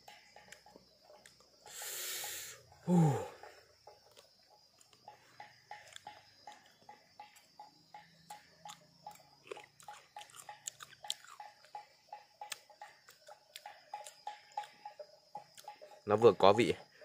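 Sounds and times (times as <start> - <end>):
person chewing fruit: 0.4 - 1.6, 4.0 - 6.8, 8.2 - 11.8, 12.4 - 14.8.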